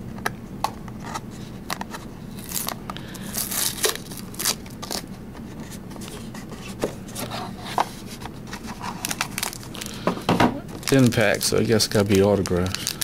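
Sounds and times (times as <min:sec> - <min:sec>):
foil crinkling: 0:02.3 - 0:05.1, 0:08.5 - 0:13.0.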